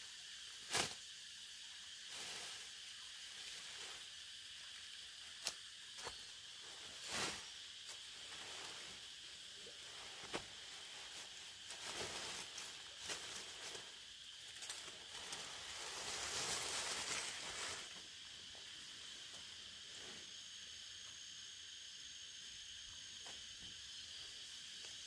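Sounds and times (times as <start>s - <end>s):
steady high-pitched hiss: 0.0s - 25.0s
foliage rustling: 5.3s - 18.7s.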